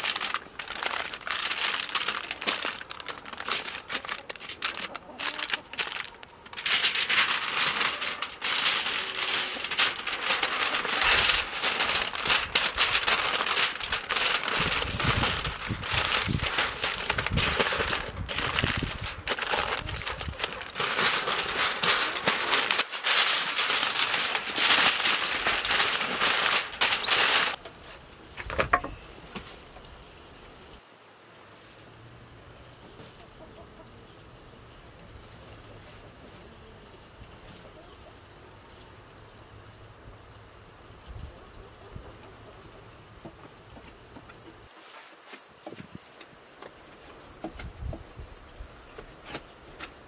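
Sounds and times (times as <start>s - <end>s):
aluminium foil crinkling: 0.0s - 29.6s.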